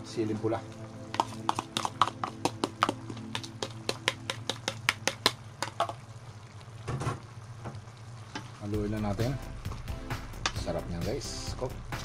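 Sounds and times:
sharp clicks and taps on bowl: 1.1s - 6.0s.

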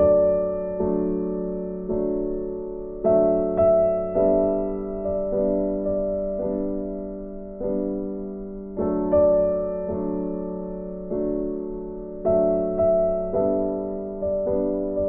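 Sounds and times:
slow gentle piano piece: 0.0s - 15.0s.

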